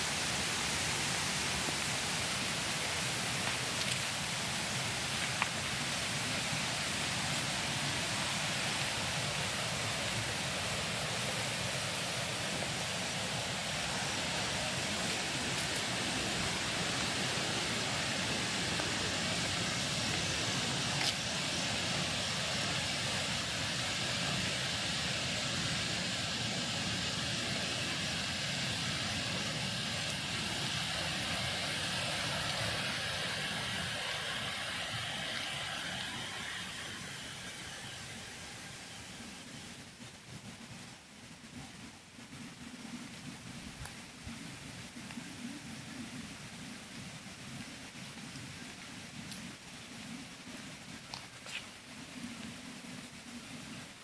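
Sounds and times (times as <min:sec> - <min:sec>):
stream water rushing: 0:00.0 - 0:41.1.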